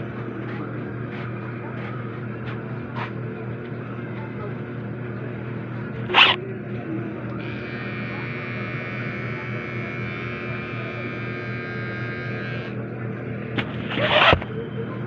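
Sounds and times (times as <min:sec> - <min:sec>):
hair trimmer buzzing: 0:06.1 - 0:06.4, 0:07.4 - 0:14.4.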